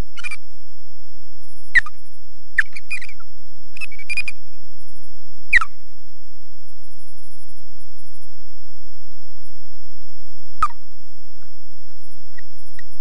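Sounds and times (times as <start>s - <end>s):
osprey alarm calls: 0.2s - 0.4s, 1.7s - 4.5s, 5.5s - 5.8s, 10.6s - 10.8s.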